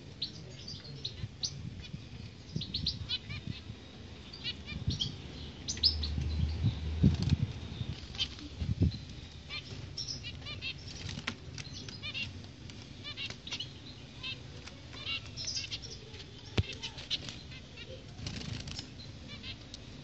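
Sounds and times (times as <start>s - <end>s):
finches chirping: 0.1s - 20.0s
wings fluttering: 7.0s - 19.7s.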